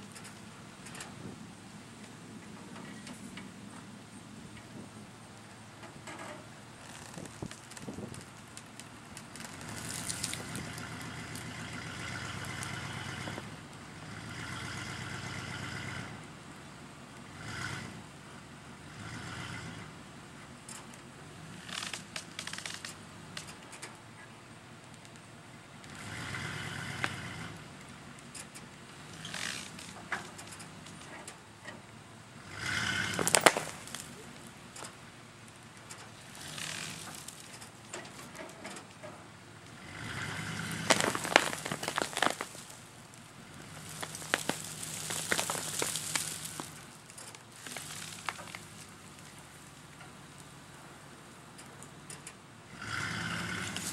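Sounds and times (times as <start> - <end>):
pickup truck engine under load: 0.0 - 53.9
sharp crackling clicks: 6.8 - 11.5, 21.7 - 24.0, 28.2 - 31.4, 33.0 - 39.8, 40.7 - 50.5.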